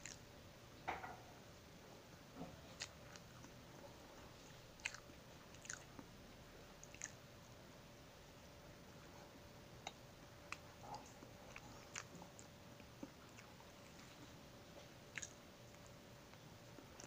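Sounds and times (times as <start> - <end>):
mouth clicks of person chewing: 0.0 - 0.2, 2.7 - 3.6, 4.8 - 6.1, 6.8 - 7.2, 15.1 - 15.9.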